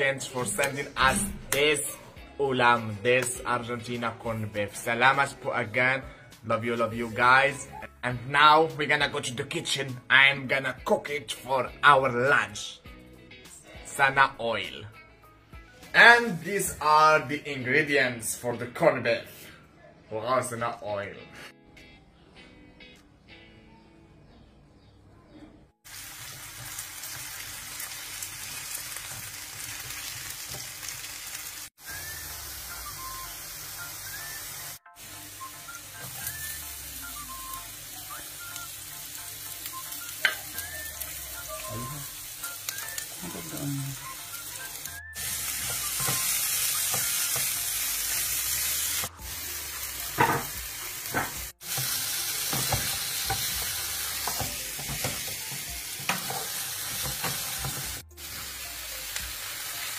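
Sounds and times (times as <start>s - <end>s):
faint background music: 0.0s - 30.7s, 31.8s - 59.9s
potatoes sizzling in oil: 25.9s - 59.9s.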